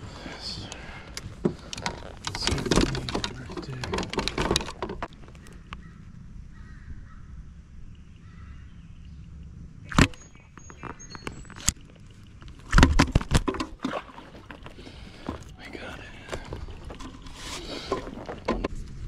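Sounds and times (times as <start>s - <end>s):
faint distant calls: 0.0s - 12.4s, 14.1s - 18.5s
knocks and clatter: 1.4s - 5.1s
low steady rumble: 4.8s - 12.9s.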